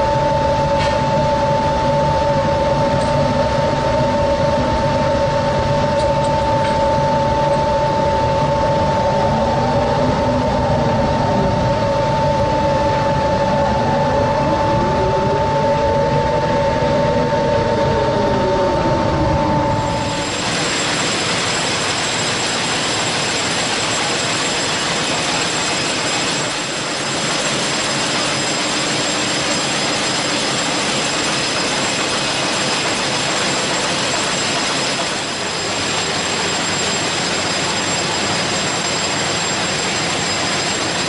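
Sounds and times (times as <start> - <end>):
deck machinery humming: 0.0 - 41.0
whining machine tones: 0.0 - 41.0
faint rising and falling tone: 4.0 - 22.5
broad rushing noise: 7.0 - 41.0.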